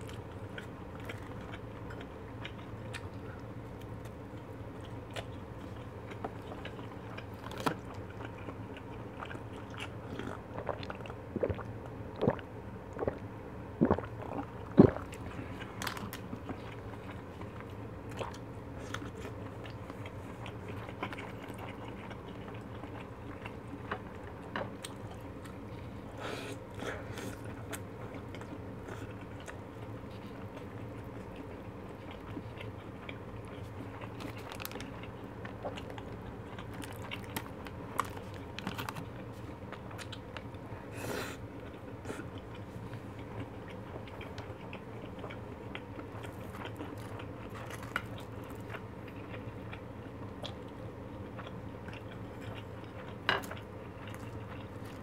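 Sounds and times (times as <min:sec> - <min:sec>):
biting and crunching food: 0:00.0 - 0:13.2, 0:13.8 - 0:25.6, 0:26.7 - 0:40.6, 0:41.6 - 0:55.0
drinking juice from a cup: 0:10.3 - 0:15.6.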